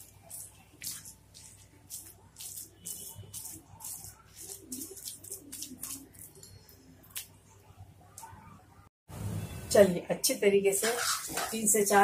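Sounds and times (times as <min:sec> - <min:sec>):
masher mashing vegetables in pan: 0:00.0 - 0:06.4.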